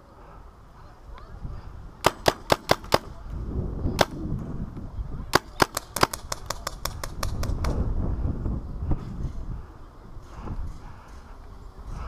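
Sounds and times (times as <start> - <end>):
paintball marker firing: 2.0 - 3.2, 4.0 - 4.2, 5.3 - 7.8.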